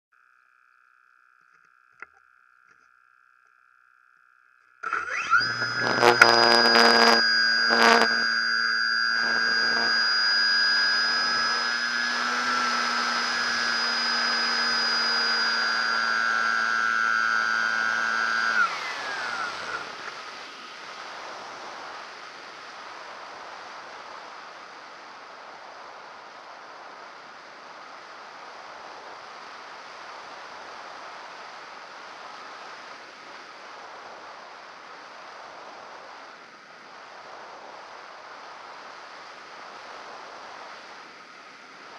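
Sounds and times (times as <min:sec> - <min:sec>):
model aircraft motor whine: 0:00.2 - 0:22.2.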